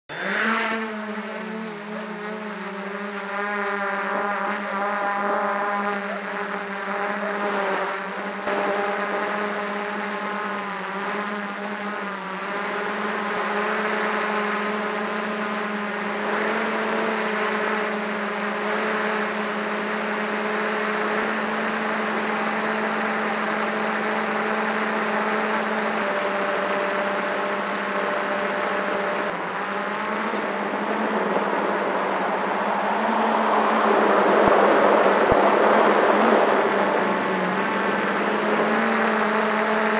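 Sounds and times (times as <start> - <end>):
drone propellers whirring: 0.1 - 39.9
rushing noise: 30.4 - 37.2.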